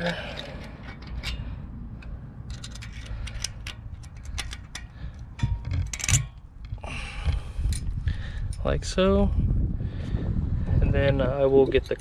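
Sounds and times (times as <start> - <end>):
metal clip clicks and scrapes: 0.0 - 6.8, 11.6 - 12.0.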